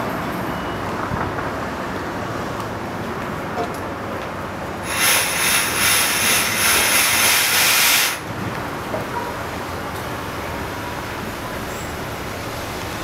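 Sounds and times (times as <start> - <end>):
compressed air hissing: 4.8 - 8.3.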